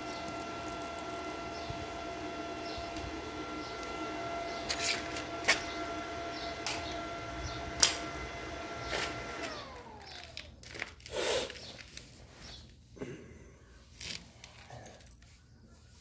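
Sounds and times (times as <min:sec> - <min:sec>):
electric motor whine: 0:00.0 - 0:10.8.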